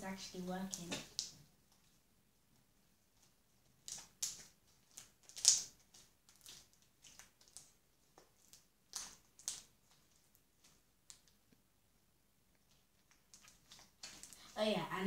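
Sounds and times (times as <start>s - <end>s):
slime crackling and popping: 0.3s - 1.9s, 3.7s - 11.5s, 12.6s - 14.5s.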